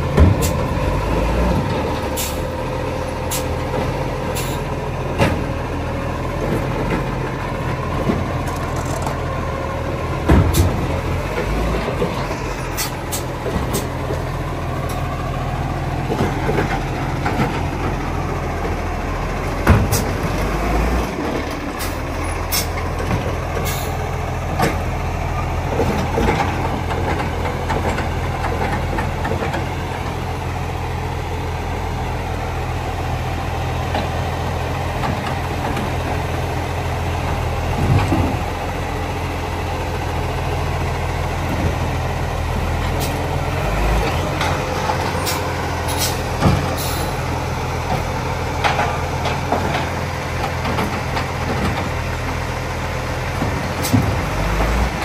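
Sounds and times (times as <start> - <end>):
diesel truck engine running: 0.0 - 55.0
knocks and clunks: 0.1 - 0.7, 5.1 - 5.6, 10.1 - 14.3, 16.0 - 18.0, 19.6 - 20.4, 22.5 - 23.8, 25.7 - 29.8, 37.3 - 38.5, 44.0 - 47.0, 47.8 - 52.1, 53.3 - 55.0.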